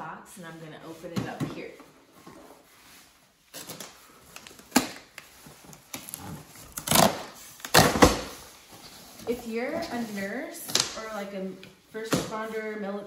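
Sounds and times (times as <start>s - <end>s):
scraping rustle: 8.3s - 13.0s.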